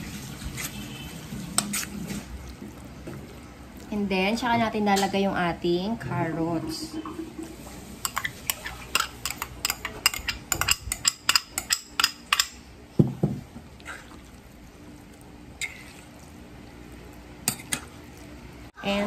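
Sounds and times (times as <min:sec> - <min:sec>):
stirring in a metal bowl: 0:00.0 - 0:05.2, 0:06.0 - 0:12.6, 0:15.0 - 0:19.0
metal spoon scraping bowls: 0:00.5 - 0:02.3, 0:08.0 - 0:12.5.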